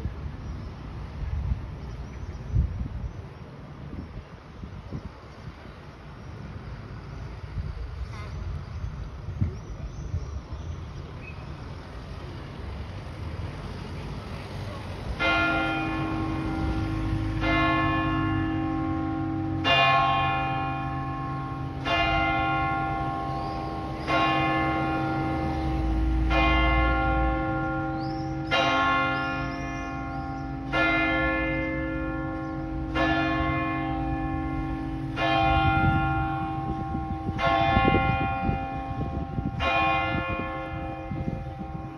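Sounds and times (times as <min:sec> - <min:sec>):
clock-tower bell striking: 0:15.2 - 0:41.9.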